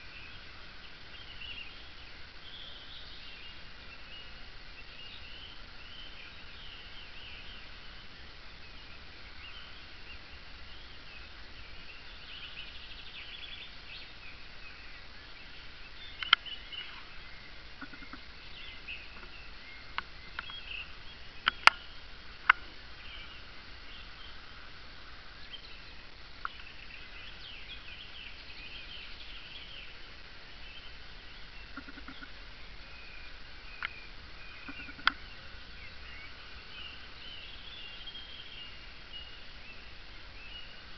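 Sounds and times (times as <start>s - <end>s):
birds singing and chirping: 0.0s - 40.9s
faint steady hiss: 0.0s - 40.9s
sharp clicks: 34.7s - 35.2s.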